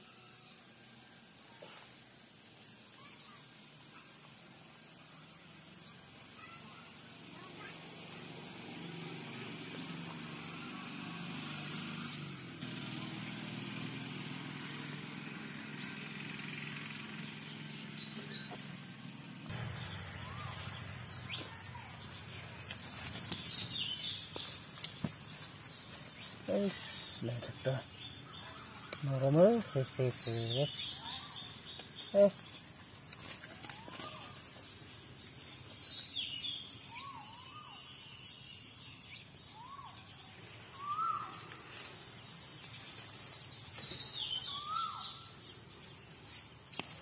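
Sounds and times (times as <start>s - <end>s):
birds chirping: 0.0s - 47.0s
high insect drone: 0.0s - 47.0s
low hum: 12.4s - 27.2s
bird trill: 35.2s - 41.5s, 43.4s - 45.6s.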